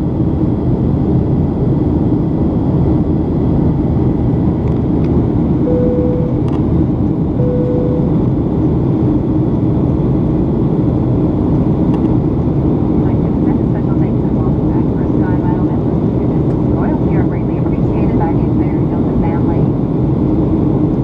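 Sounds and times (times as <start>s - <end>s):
airplane cabin drone: 0.0s - 21.0s
short beeps: 5.7s - 6.5s, 7.4s - 8.3s.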